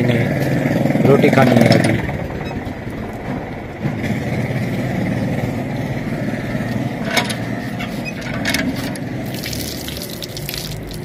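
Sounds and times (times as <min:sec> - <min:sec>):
motor humming steadily: 0:00.0 - 0:11.0.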